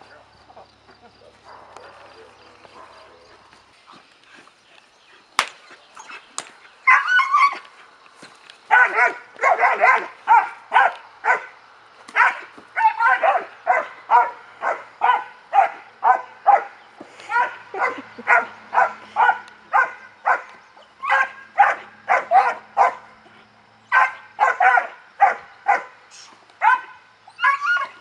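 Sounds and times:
puppy barking: 8.7 - 11.5, 12.2 - 23.1, 23.9 - 26.0, 26.6 - 28.0.

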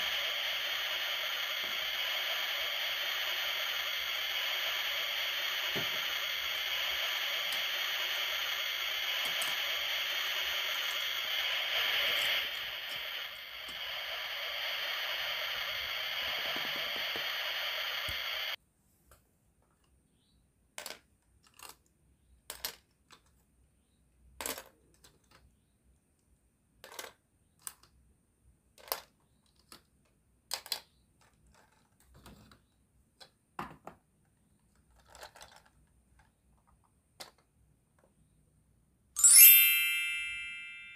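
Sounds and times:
sizzling hiss: 0.0 - 18.6, 39.2 - 40.9
plastic toy food clicking: 20.7 - 23.4, 26.8 - 28.0, 28.7 - 32.0, 34.6 - 37.5.

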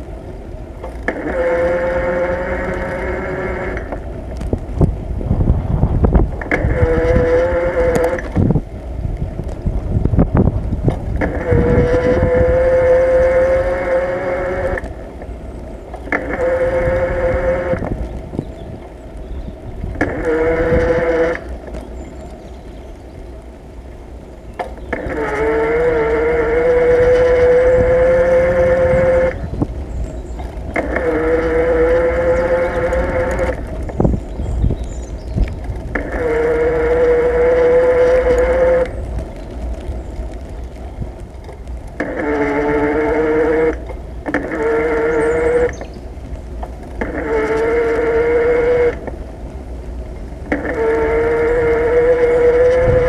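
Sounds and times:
road and wind noise: 0.0 - 53.0
bicycle brakes squealing: 42.0 - 46.1.

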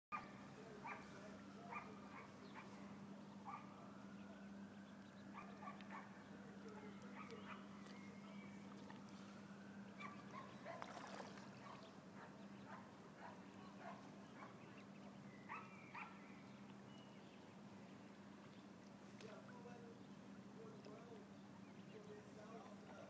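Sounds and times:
ducklings peeping: 9.9 - 18.7.

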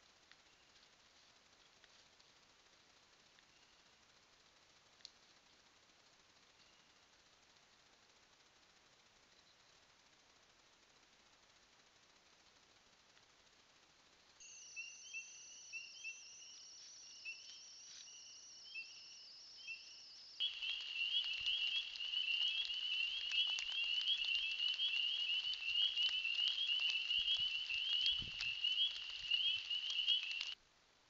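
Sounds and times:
faint clicks: 4.9 - 8.5, 20.4 - 30.6
frogs peeping: 14.4 - 30.6.

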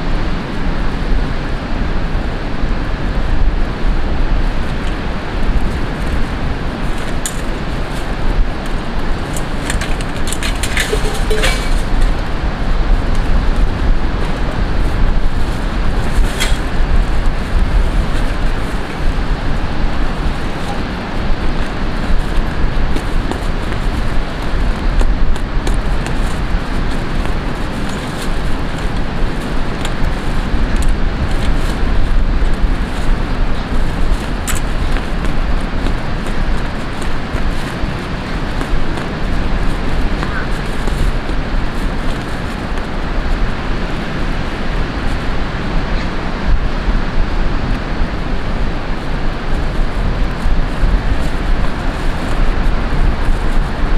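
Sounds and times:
wind rumbling on microphone: 0.0 - 53.9
beach parasol clicks and rattles: 3.3 - 45.9, 47.0 - 53.9
camping gear clicks: 6.9 - 8.0, 8.6 - 12.3, 33.6 - 39.1.

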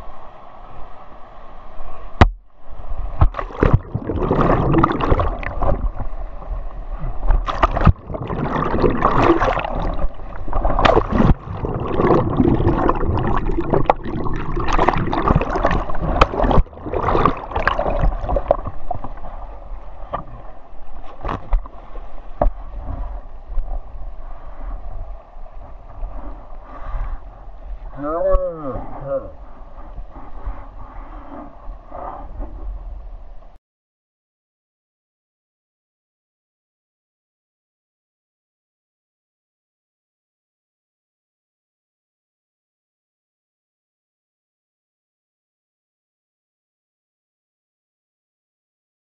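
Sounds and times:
sharp water splashes: 3.2 - 6.0, 7.3 - 18.9
whitewater rushing and gurgling: 6.9 - 19.4.

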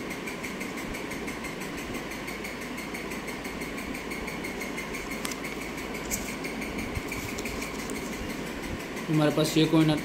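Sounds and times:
banknotes crinkling: 4.9 - 8.5.

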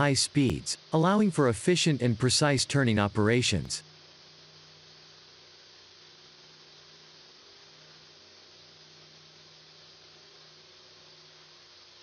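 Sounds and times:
even hiss: 0.0 - 3.8
faint steady hum: 0.0 - 12.0.

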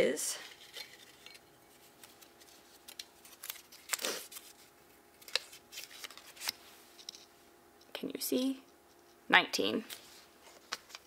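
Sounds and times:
paper slip rustling and crinkling: 0.4 - 7.3.

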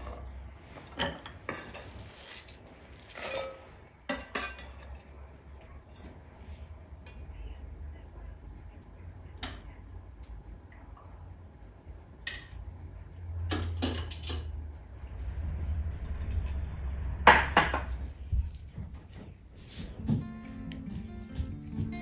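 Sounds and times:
dishes and utensils clinking: 0.0 - 5.2, 13.5 - 14.6.

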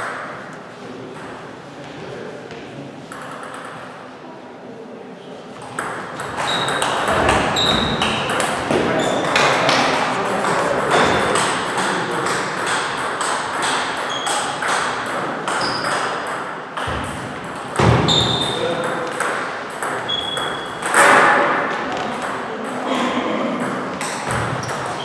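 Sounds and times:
table tennis balls clicking: 3.1 - 3.9, 5.6 - 17.9.

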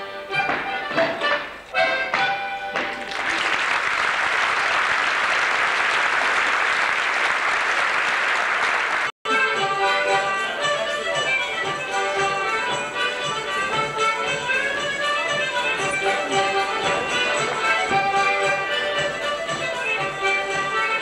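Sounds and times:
folk band playing dance tune: 0.0 - 21.0
audience applauding: 2.9 - 9.1.

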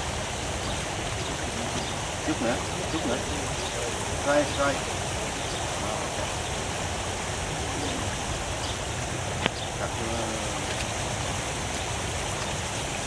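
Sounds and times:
fountain water splashing: 0.0 - 13.0
faint voices: 1.2 - 8.4.

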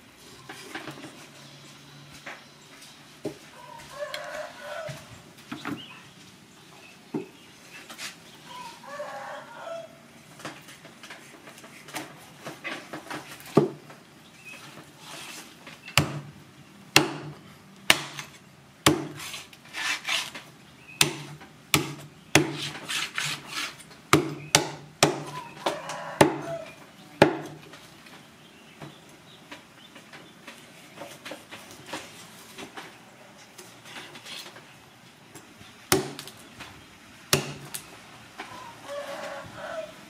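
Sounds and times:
knife scraping board: 15.0 - 15.6, 19.1 - 20.4, 22.4 - 23.8, 33.9 - 34.5
knife chopping on wooden board: 21.0 - 23.4.

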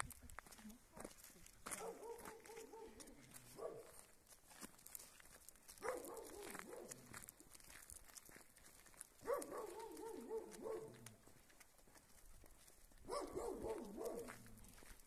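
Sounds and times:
dog barking: 1.7 - 4.1, 5.8 - 7.1, 9.2 - 11.0, 13.0 - 14.5.

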